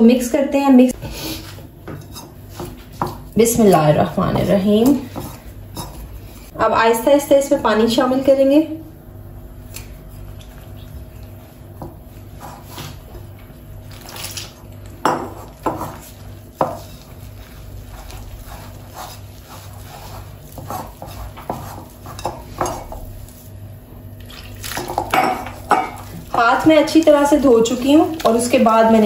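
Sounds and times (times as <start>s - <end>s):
hand squishing batter in bowl: 14.8s - 23.6s.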